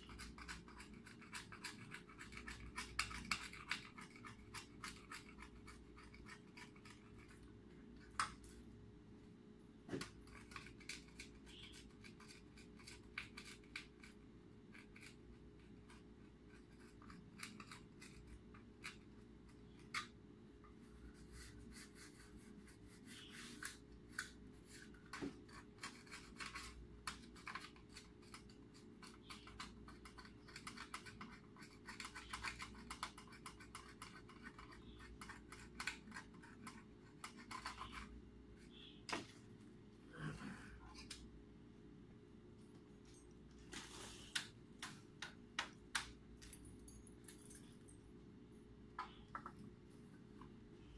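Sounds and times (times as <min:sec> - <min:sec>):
faint steady hum: 0:00.0 - 0:50.9.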